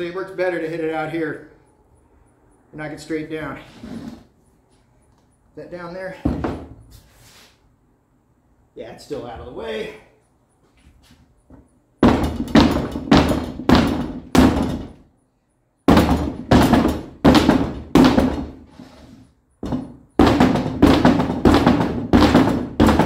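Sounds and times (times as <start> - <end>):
rubber mallet pounding a tire: 12.0 - 15.0, 15.9 - 18.7, 19.6 - 23.0.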